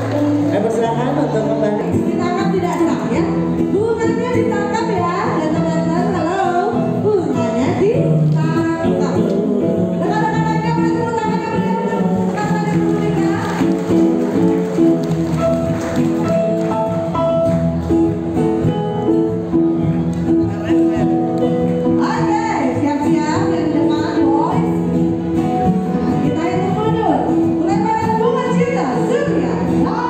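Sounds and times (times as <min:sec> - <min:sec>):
accompanying music: 0:00.0 - 0:30.0
woman singing into a microphone: 0:03.7 - 0:13.6.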